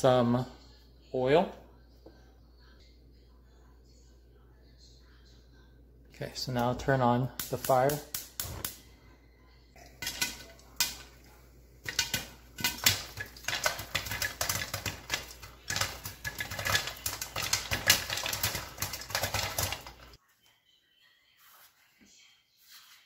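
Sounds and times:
popcorn popping in a pan: 6.6 - 8.8, 9.8 - 20.2.

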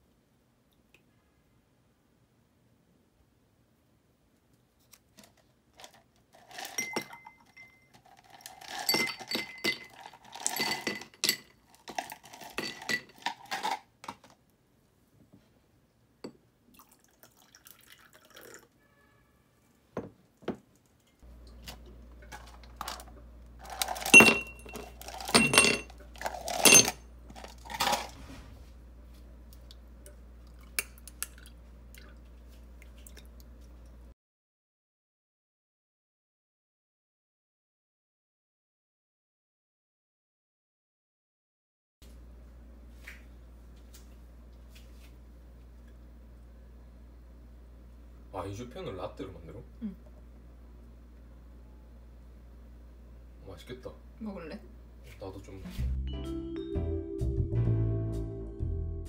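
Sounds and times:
ice cubes clinking in glasses: 5.8 - 13.9, 22.2 - 28.1.

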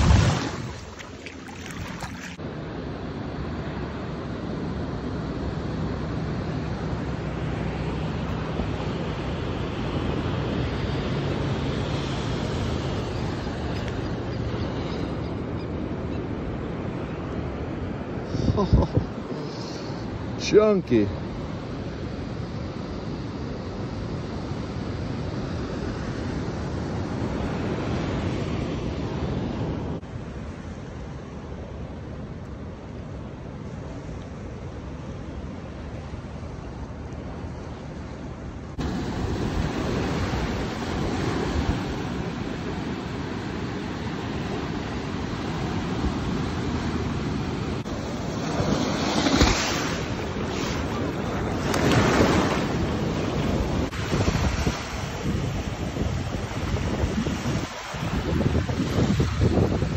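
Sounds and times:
wind on microphone: 0.0 - 2.2, 18.2 - 20.2, 45.2 - 59.9
small surf washing up sand: 0.0 - 2.4, 38.8 - 59.9
surf washing at shoreline: 0.0 - 59.9.

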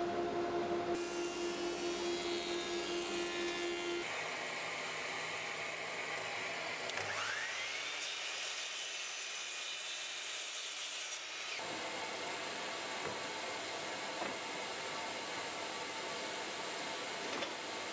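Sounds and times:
mitre saw motor whine: 0.0 - 4.9
thickness planer running: 0.0 - 7.8
saw blade cutting board: 1.0 - 4.3.

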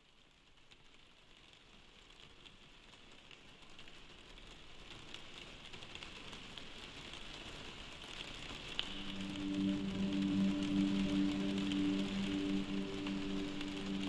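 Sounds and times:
faint crackling patter: 0.6 - 14.0.

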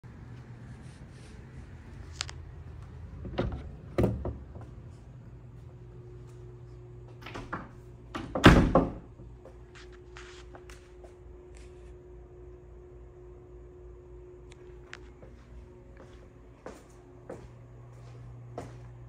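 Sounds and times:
door thud: 7.4 - 9.1.

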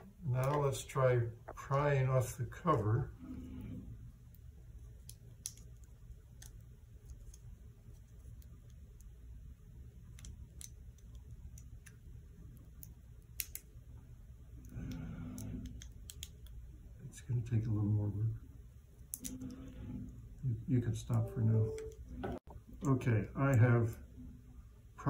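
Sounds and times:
low voice-like sound: 20.4 - 24.0.

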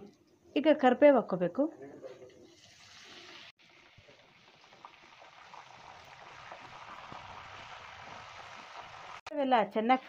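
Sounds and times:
leaves sizzling in hot oil: 2.5 - 9.3.

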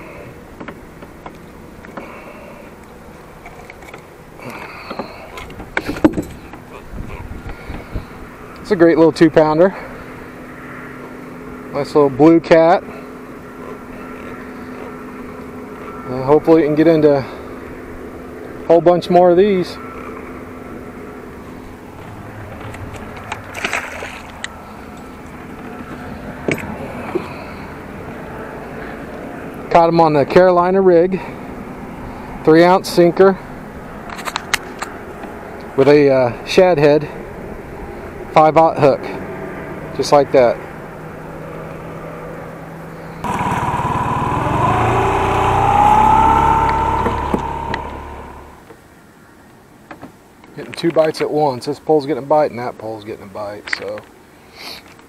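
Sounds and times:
wind: 0.0 - 55.0
water noise: 22.8 - 24.9, 43.2 - 48.6
outboard motor running: 43.2 - 48.6.

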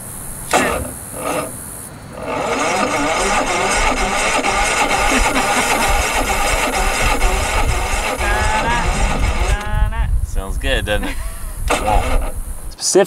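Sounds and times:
generator starter cranking: 0.0 - 9.8, 11.4 - 12.7.

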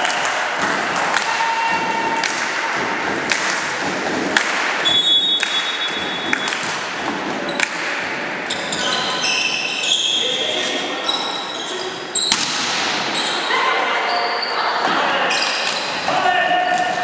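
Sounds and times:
hubbub in sports hall: 0.0 - 17.0
referee's whistle: 4.8 - 6.6.

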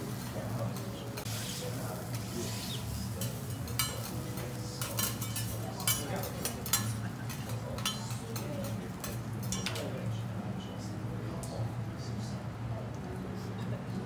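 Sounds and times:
metal spatula scraping griddle: 1.2 - 4.2.

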